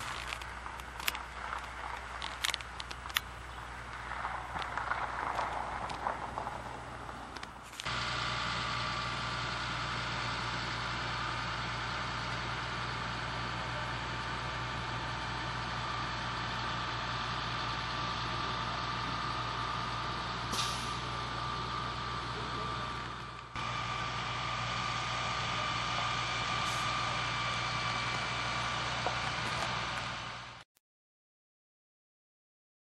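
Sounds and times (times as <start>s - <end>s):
vehicle engine hum: 0.0s - 30.6s.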